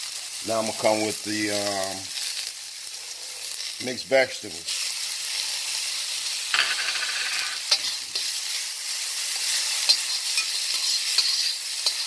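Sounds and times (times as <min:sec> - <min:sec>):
vegetables sizzling in hot oil: 0:00.0 - 0:12.0
metal spatula scraping wok: 0:06.5 - 0:12.0.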